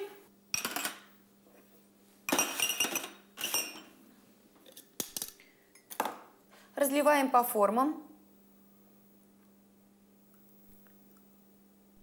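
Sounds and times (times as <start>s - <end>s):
ceramic ramekins clinking: 2.3s - 3.9s.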